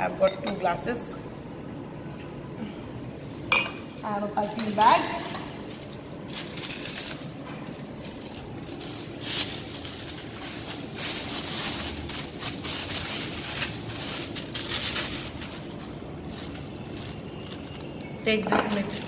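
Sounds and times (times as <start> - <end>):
plastic bag crinkling: 4.4 - 19.0.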